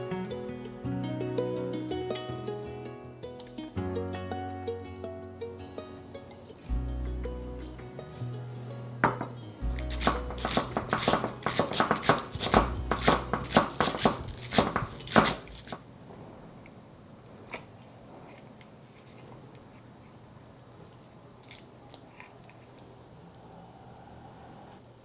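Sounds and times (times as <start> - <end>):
knife chopping on cutting board: 10.0 - 15.5.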